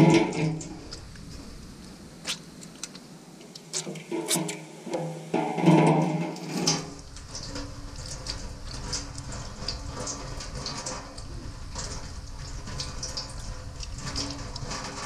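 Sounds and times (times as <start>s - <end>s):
water splashing into metal sink: 0.0s - 0.9s, 3.8s - 15.0s
water running from a tap: 6.4s - 15.0s.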